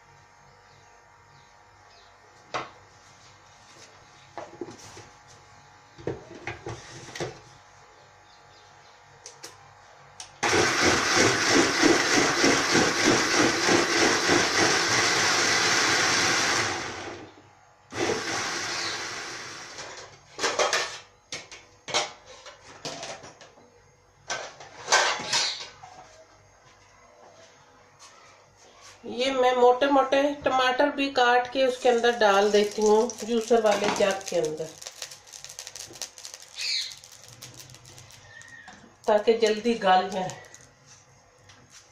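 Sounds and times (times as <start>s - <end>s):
blender running: 10.4s - 20.0s, 31.8s - 40.7s.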